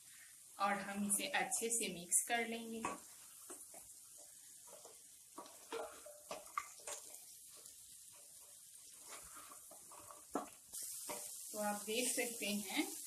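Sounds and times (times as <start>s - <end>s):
faint sizzle: 0.0s - 13.0s
spatula scraping a pan: 2.8s - 12.2s.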